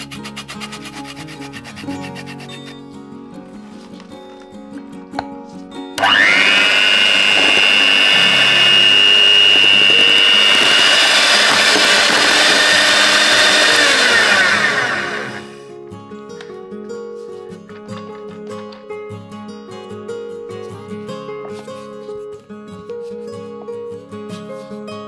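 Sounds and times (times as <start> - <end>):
electric hand mixer whining: 6.0 - 15.7.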